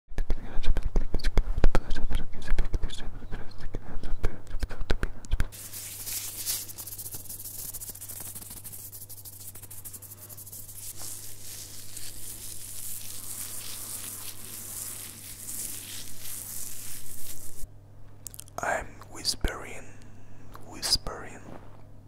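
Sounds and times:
fingers scratching through beard: 0:05.5 - 0:17.7
gloved hands rubbing and crinkling: 0:05.5 - 0:17.7.

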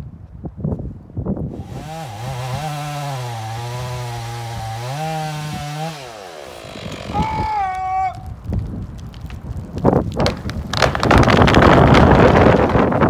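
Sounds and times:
chainsaw cutting wood: 0:01.5 - 0:07.9.

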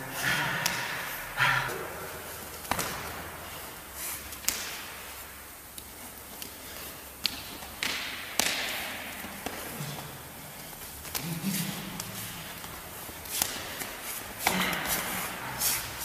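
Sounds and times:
hands slapping and thudding: 0:02.6 - 0:03.2.

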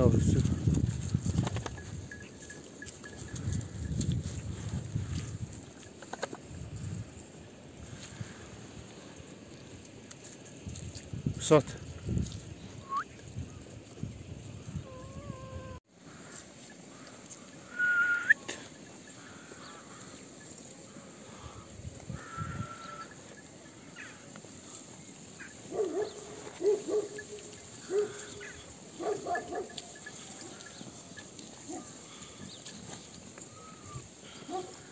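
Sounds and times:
sheep and lambs bleating: 0:21.1 - 0:24.2.

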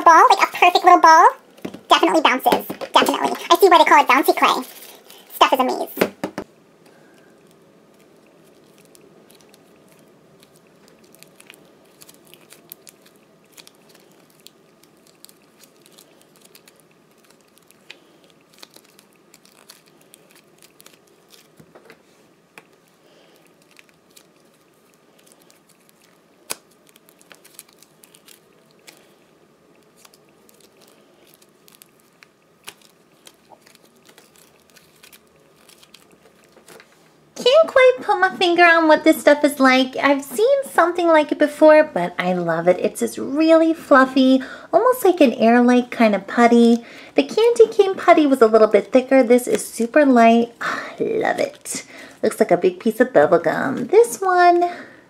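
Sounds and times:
clay crackling and squishing: 0:06.8 - 0:41.2, 0:43.9 - 0:55.0
clay snapping: 0:25.2 - 0:29.1.

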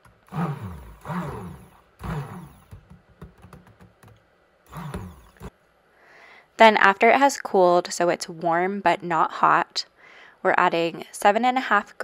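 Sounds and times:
immersion blender whirring: 0:00.0 - 0:02.9, 0:04.7 - 0:05.5.

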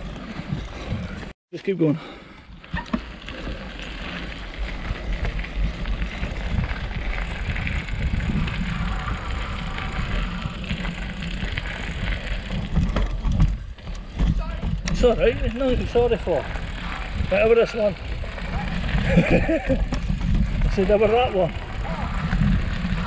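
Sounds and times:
bicycle tyre noise on dirt: 0:00.0 - 0:23.0
bicycle frame rattle: 0:02.5 - 0:23.0
knocks from trail bumps: 0:12.4 - 0:15.2.

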